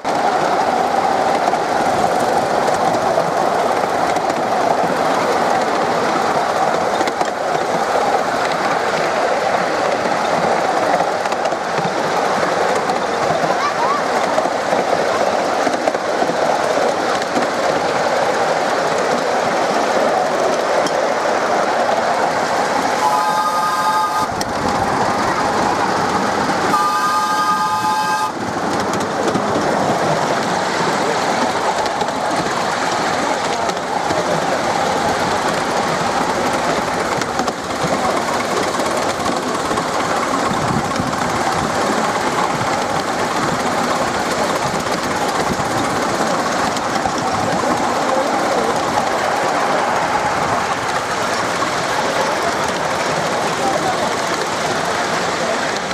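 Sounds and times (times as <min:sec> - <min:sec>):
train wheels running on track: 0:00.0 - 0:55.9
locomotive whistle: 0:23.0 - 0:24.4, 0:26.7 - 0:28.5.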